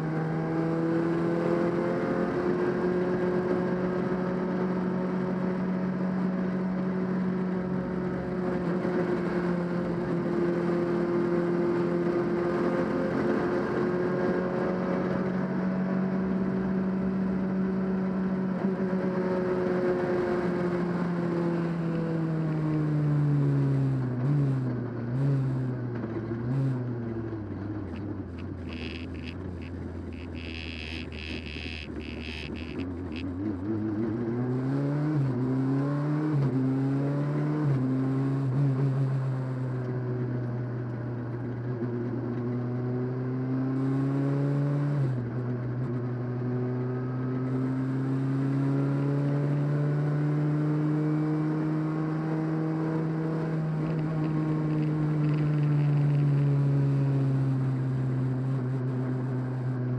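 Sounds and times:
rally car engine revving: 23.5s - 59.9s
high-pitched squeal: 28.6s - 33.2s.

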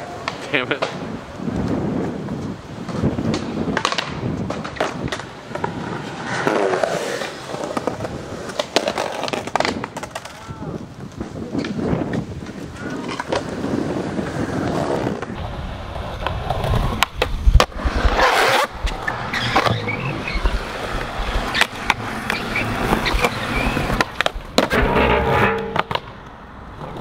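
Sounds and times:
skateboard clacking on ground: 0.0s - 13.6s, 14.2s - 27.0s
skateboard rolling: 0.0s - 27.0s.

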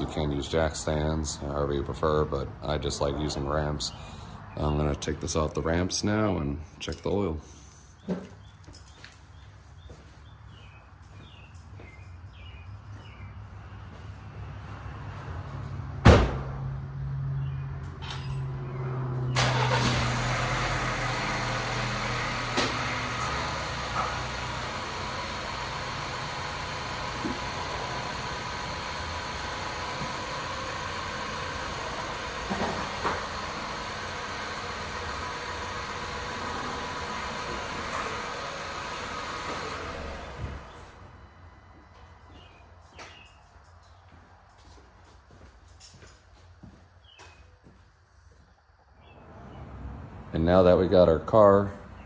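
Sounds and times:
car engine starting and running: 15.4s - 41.6s
thump: 16.0s - 16.6s.

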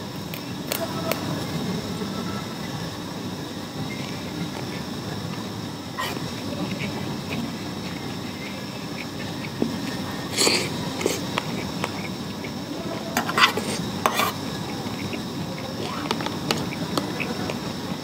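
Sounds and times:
spoon scraping plastic box: 6.0s - 12.2s, 13.2s - 15.2s
person chewing: 6.0s - 17.7s.

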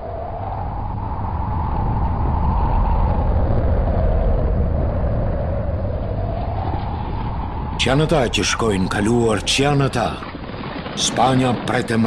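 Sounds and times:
horses galloping rumble: 6.9s - 12.0s.

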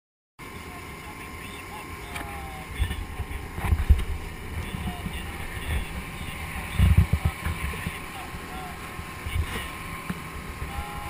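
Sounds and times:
boat motor hum: 0.4s - 11.0s
wind buffeting microphone: 2.5s - 11.0s.

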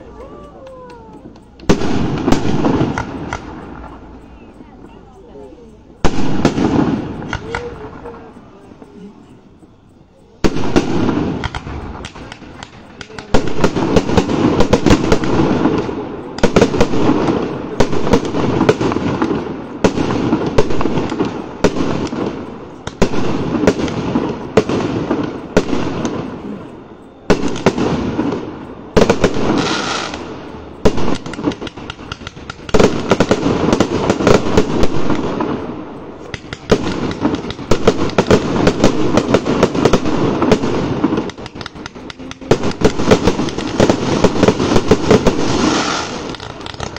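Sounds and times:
fireworks bangs and crackling: 0.0s - 46.9s.

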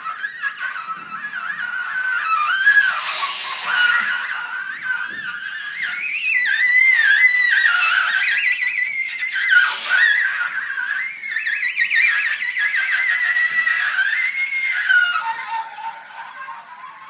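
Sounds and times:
wind instrument with wide vibrato: 0.0s - 17.0s.

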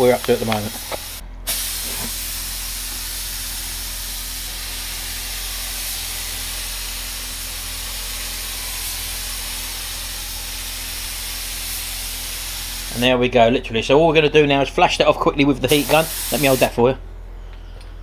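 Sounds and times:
spray gun hissing: 0.0s - 13.0s, 15.7s - 16.7s.

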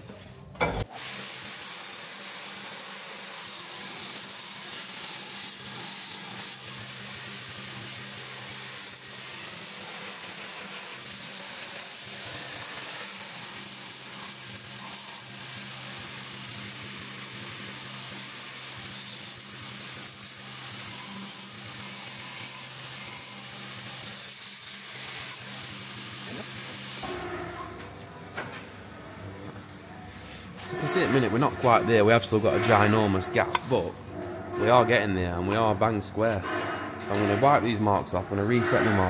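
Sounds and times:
machine hum: 24.9s - 38.6s
belt grinding metal pipe: 30.6s - 37.8s.

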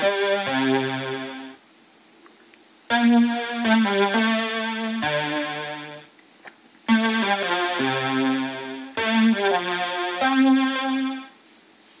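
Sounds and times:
string synthesizer chords: 0.0s - 1.6s, 2.9s - 6.1s, 6.9s - 11.3s.

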